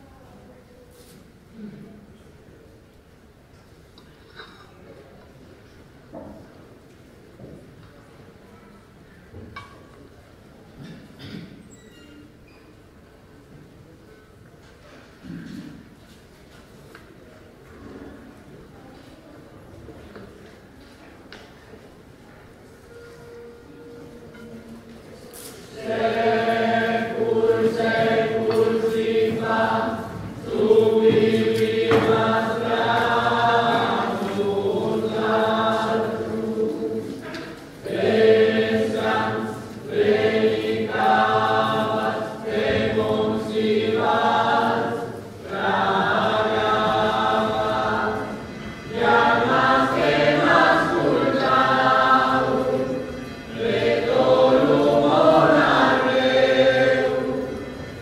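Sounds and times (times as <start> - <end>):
choir singing a hymn: 25.4 - 58.0.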